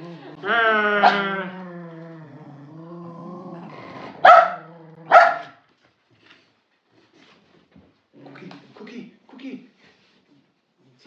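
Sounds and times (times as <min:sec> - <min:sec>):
dog growling: 0:00.0 - 0:05.5
dog barking: 0:04.2 - 0:05.6.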